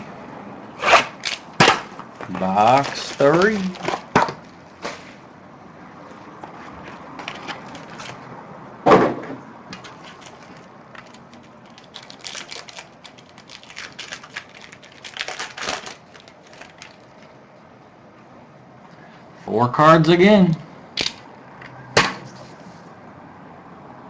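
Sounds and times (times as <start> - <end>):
plastic wrapper crinkling: 2.2 - 4.6, 7.2 - 8.2, 9.8 - 17.2.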